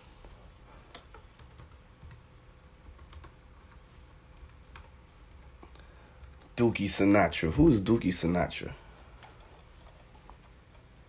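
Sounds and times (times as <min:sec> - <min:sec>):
laptop keyboard typing: 0:00.9 - 0:06.6.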